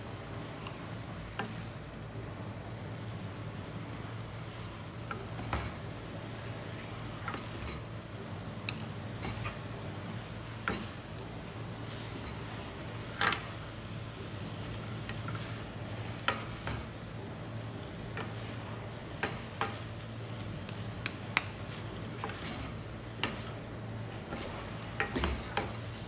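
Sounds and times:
faint sizzle in wok: 0:00.0 - 0:26.0
steady low hum: 0:00.0 - 0:26.0
wooden spatula scraping pan: 0:21.6 - 0:25.9.

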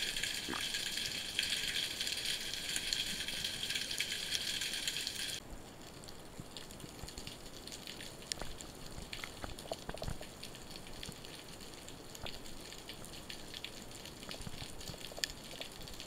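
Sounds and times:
underwater crackling: 0:00.0 - 0:05.4, 0:06.6 - 0:16.0
scattered underwater clicks: 0:06.0 - 0:16.0.

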